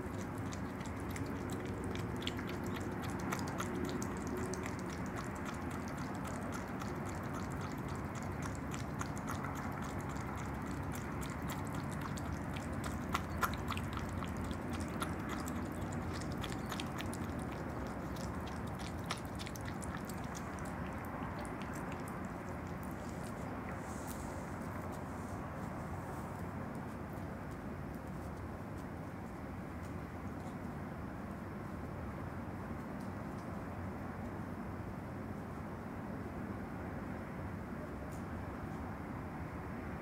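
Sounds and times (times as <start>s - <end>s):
animal lapping and chewing: 0.0s - 28.2s.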